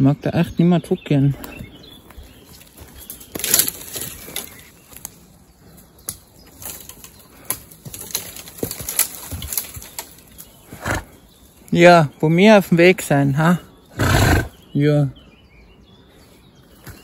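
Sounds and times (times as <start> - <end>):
scuffing footsteps on trail: 1.3 - 11.7, 16.2 - 17.0.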